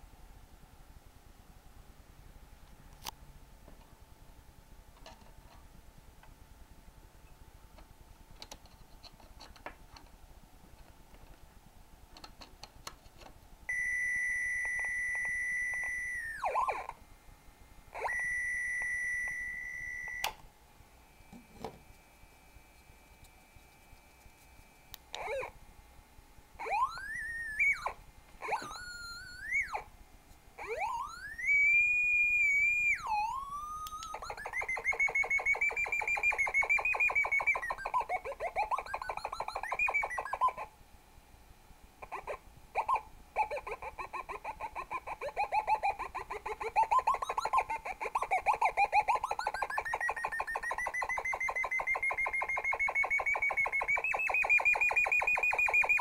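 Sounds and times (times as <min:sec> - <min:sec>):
buzzy electronic tone: 0:26.6 - 0:29.9.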